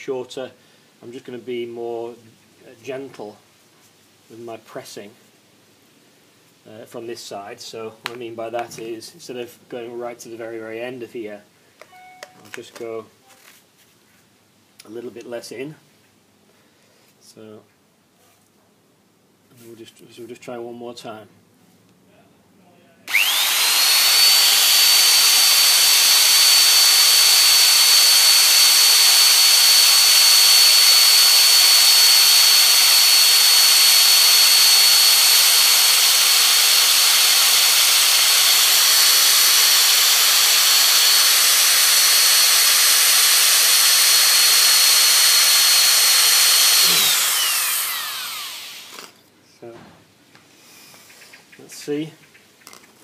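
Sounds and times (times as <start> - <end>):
electric drill whining: 23.1 - 49.2.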